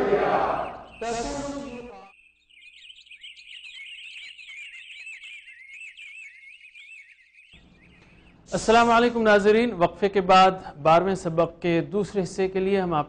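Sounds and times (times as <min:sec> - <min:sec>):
small birds chirping: 0:00.0 - 0:09.8.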